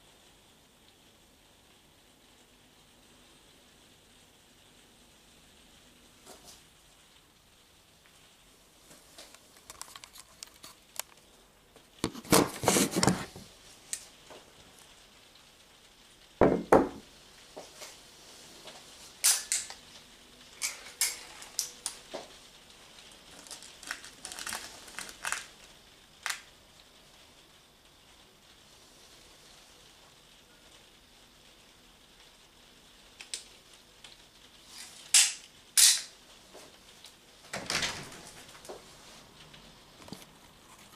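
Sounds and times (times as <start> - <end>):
clicking and rattling objects: 9.2 - 11.3, 23.3 - 25.6
heavy knock on table: 16.4 - 17.0.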